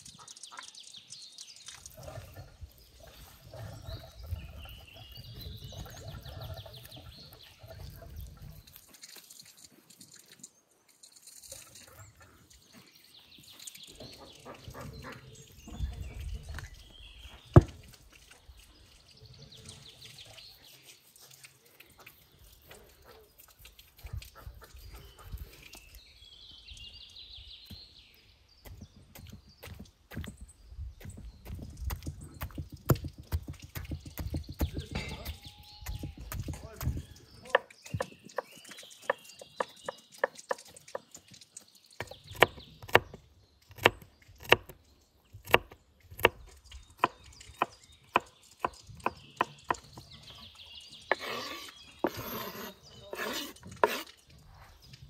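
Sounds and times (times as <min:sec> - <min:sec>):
knife slicing raw meat: 0:51.1 - 0:54.2.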